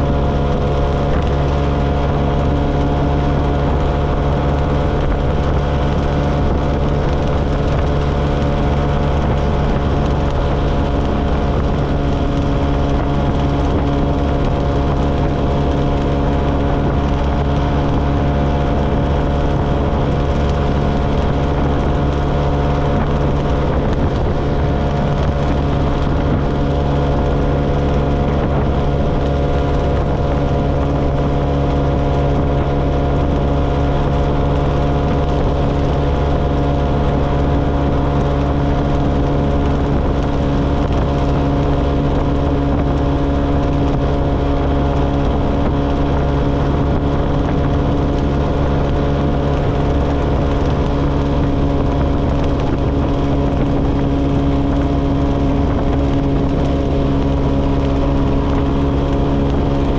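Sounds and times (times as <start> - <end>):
riding wind noise: 0.0 - 59.9.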